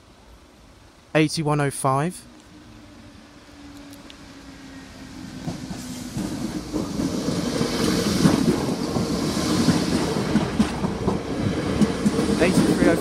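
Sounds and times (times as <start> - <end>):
train rushing hiss: 2.8 - 13.0
train wheels clattering: 5.3 - 13.0.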